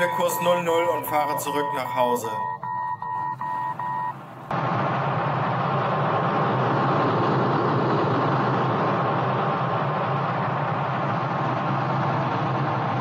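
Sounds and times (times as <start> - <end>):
electronic cockpit beeps: 0.0 - 4.2.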